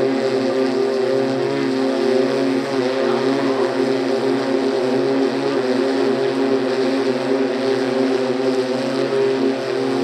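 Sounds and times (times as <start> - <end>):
electric propellers droning overhead: 0.0 - 10.0.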